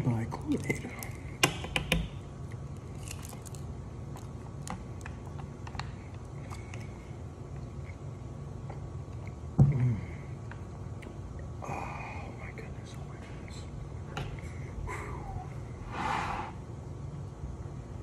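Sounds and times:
plastic straw wrapper crinkles: 2.8s - 3.7s.

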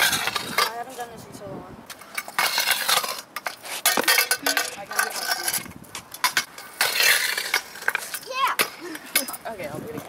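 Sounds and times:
metal scraping on concrete: 0.0s - 10.0s
scooter metallic clacks and knocks: 1.9s - 9.4s.

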